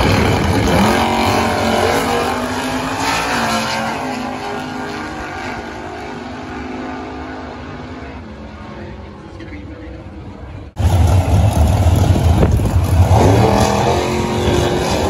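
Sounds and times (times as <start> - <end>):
drag racing engines accelerating: 0.0 - 15.0.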